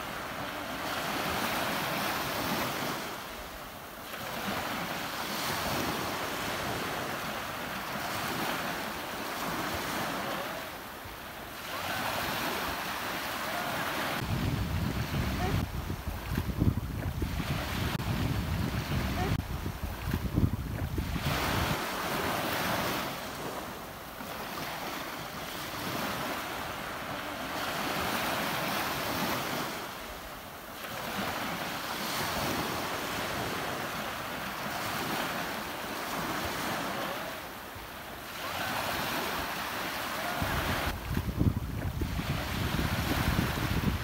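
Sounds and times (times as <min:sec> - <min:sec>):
ocean surf washing: 0:00.0 - 0:44.0
wind buffeting microphone: 0:13.8 - 0:23.6, 0:40.4 - 0:44.0.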